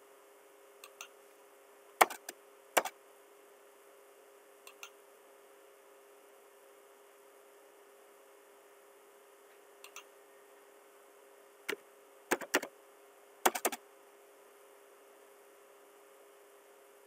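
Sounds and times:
faint steady hum: 0:00.0 - 0:17.0
computer keyboard typing: 0:13.5 - 0:13.8.

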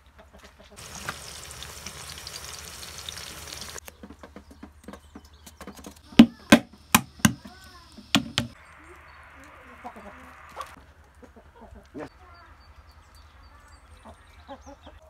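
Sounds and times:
rain hiss: 0:00.8 - 0:03.8, 0:06.1 - 0:10.8
metal pestle knocking walnut: 0:06.2 - 0:08.6.

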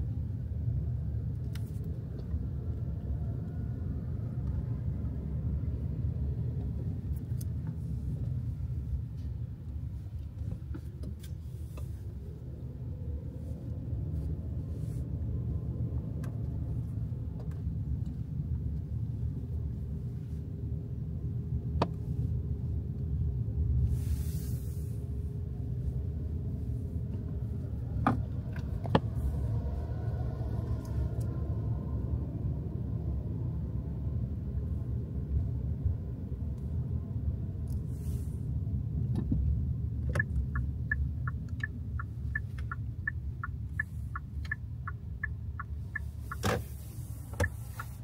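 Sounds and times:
car driving interior rumble: 0:00.0 - 0:48.0
brief hiss: 0:23.9 - 0:25.0.

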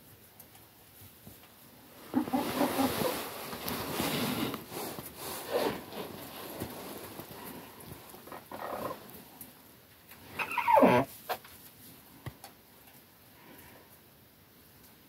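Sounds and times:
rustling: 0:00.8 - 0:12.3
chickens clucking and squawking: 0:02.1 - 0:03.3.

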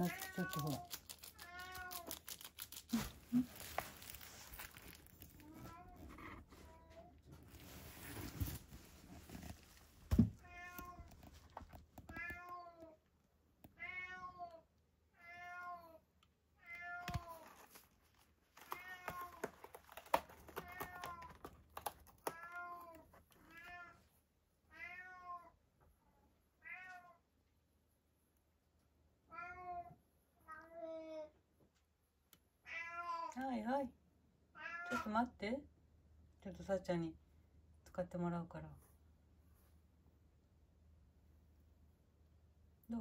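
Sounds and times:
cat meowing: 0:00.0 - 0:02.2, 0:10.4 - 0:11.2, 0:13.8 - 0:14.6, 0:15.2 - 0:16.0, 0:24.7 - 0:25.6, 0:26.6 - 0:27.2, 0:34.6 - 0:35.1.

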